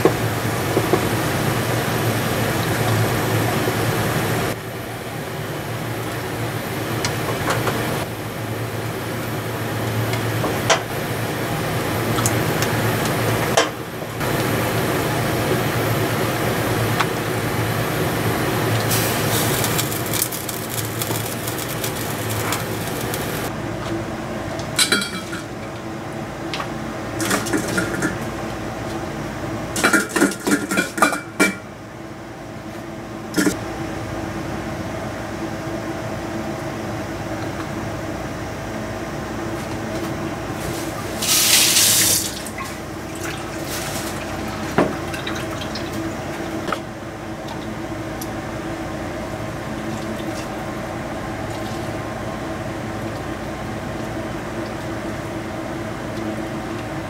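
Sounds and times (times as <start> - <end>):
soup boiling: 18.6 - 23.5
dishes and utensils clinking: 24.8 - 25.5
liquid poured and splashing: 41.2 - 46.0.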